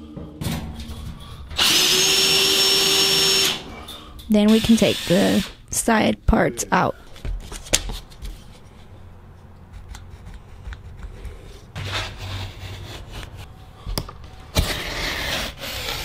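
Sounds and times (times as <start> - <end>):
utility knife scraping drywall: 9.7 - 13.5, 14.5 - 16.0.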